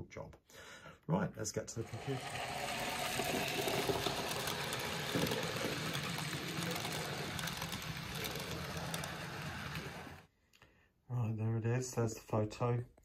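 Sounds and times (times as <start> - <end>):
model train motor whirring: 1.9 - 10.3
wheels rumbling on rail: 2.7 - 10.2.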